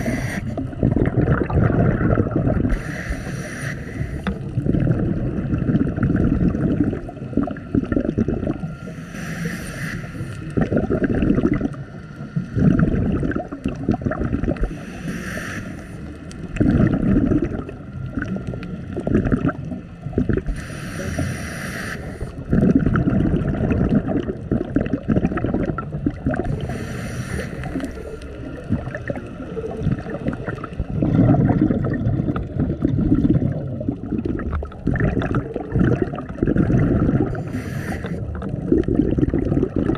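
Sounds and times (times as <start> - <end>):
regulator inhale hiss: 0.0 - 0.6, 2.7 - 4.6, 8.6 - 10.6, 14.6 - 16.4, 20.5 - 22.5, 26.5 - 28.6, 37.2 - 38.4
exhaled air bubbling: 0.0 - 39.9.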